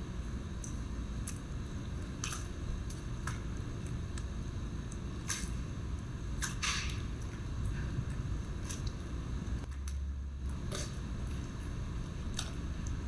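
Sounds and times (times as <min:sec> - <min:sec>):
steady low rumble: 0:00.0 - 0:13.0
pool water lapping: 0:00.6 - 0:13.0
small sharp splashes: 0:04.9 - 0:05.7.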